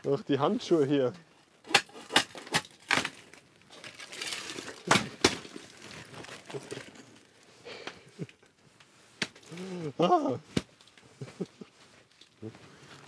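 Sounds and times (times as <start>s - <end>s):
ice crackling and scraping: 1.4s - 10.2s.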